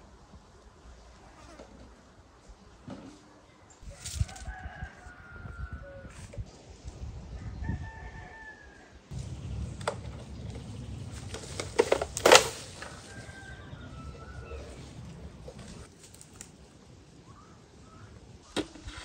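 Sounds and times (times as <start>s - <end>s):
branches rustling: 3.8s - 5.4s, 9.1s - 17.1s
rooster crowing: 3.9s - 6.2s, 7.4s - 9.0s, 12.6s - 15.9s
pole knocking tree branches: 9.1s - 15.9s.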